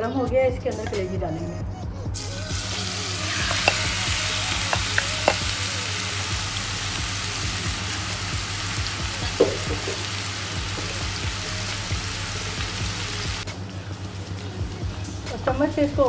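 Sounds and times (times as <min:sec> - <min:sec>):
liver sizzling in oil: 0:02.5 - 0:13.5
oil popping: 0:02.6 - 0:05.7, 0:08.7 - 0:11.2.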